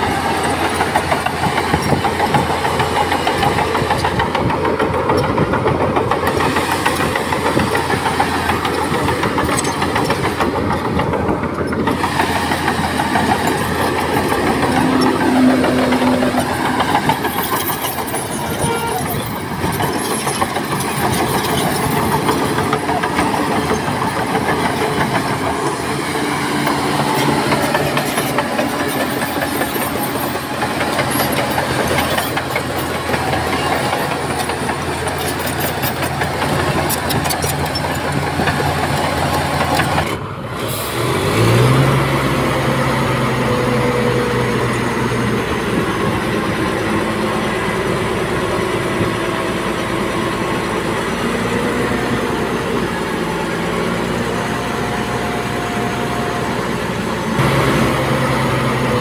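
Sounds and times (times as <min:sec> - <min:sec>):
heavy diesel engines running: 0:00.0 - 0:59.0
engine revving: 0:39.4 - 0:44.8, 0:57.3 - 0:59.0.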